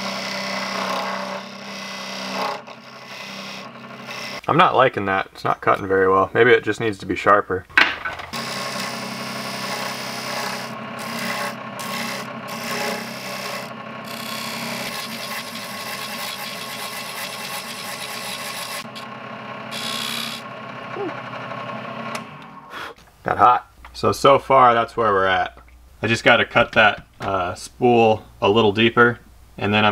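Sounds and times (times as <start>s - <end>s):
chisel scraping wood: 0.0s - 4.4s, 8.3s - 19.1s
lathe motor hum: 0.0s - 4.5s, 8.3s - 22.7s.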